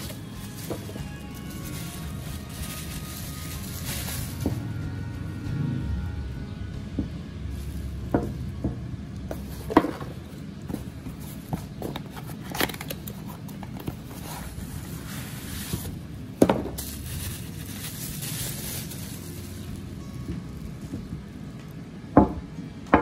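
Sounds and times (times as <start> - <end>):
packaging rustling: 0.0 - 4.6, 16.7 - 21.0.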